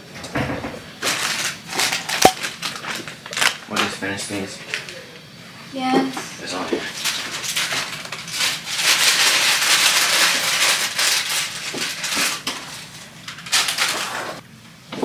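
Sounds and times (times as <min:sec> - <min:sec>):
snack packaging crinkling: 0:01.0 - 0:04.9, 0:06.9 - 0:14.4.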